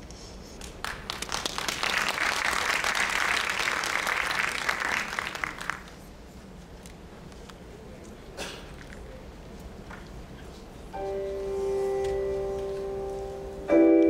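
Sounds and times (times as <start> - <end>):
audience applauding: 0.6 - 6.1.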